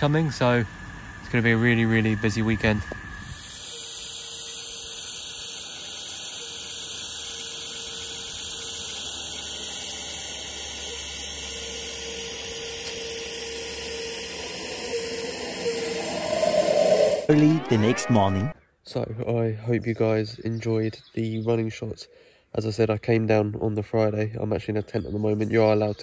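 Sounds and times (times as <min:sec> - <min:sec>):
faint steady tone: 0:00.0 - 0:17.3
steam locomotive hissing: 0:00.0 - 0:18.6.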